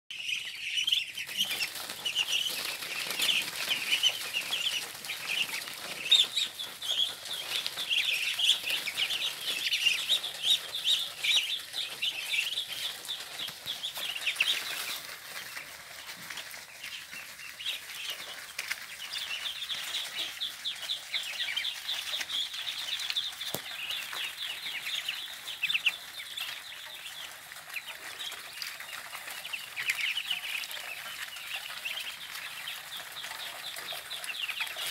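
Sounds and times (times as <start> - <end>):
ducklings peeping: 0.1 - 34.9.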